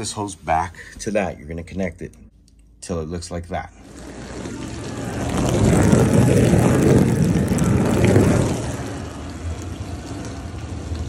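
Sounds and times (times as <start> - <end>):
dishwasher running: 3.8 - 11.0.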